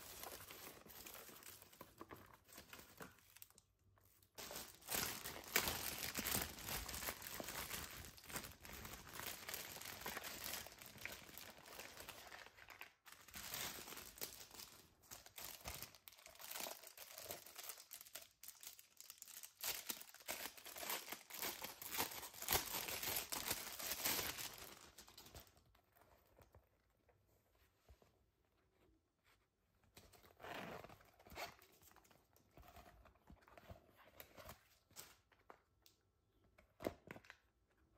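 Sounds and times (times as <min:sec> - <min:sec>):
plastic bag crinkling: 0:04.4 - 0:25.5.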